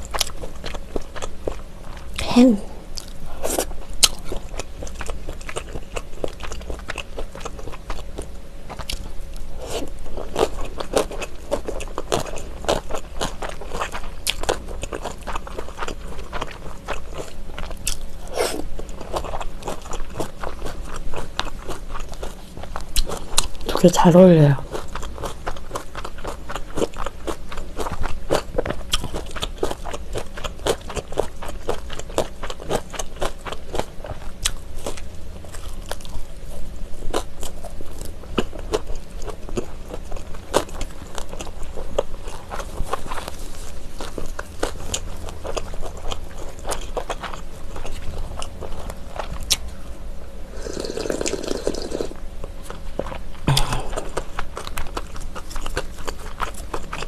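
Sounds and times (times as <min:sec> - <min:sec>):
close-miked chewing: 0:00.0 - 0:57.0.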